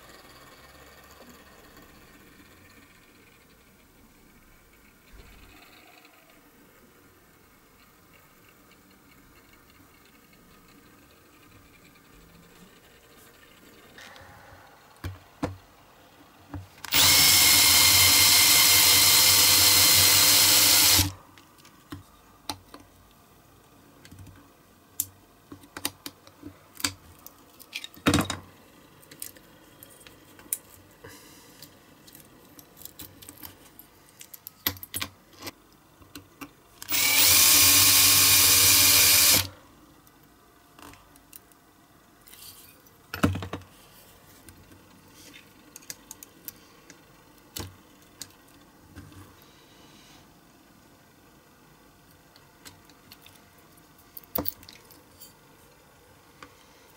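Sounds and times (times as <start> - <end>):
power drill whining: 16.9 - 21.2, 36.9 - 39.5.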